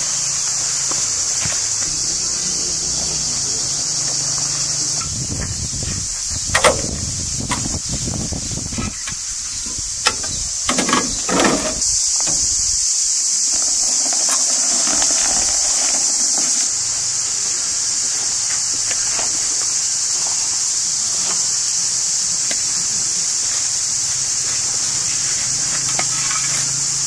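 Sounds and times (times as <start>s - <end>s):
high-pitched hiss: 0.0s - 27.0s
wheelbarrow pushed over dirt: 8.1s - 12.6s, 13.5s - 17.0s
blocks clunking into wheelbarrow: 10.0s - 12.5s.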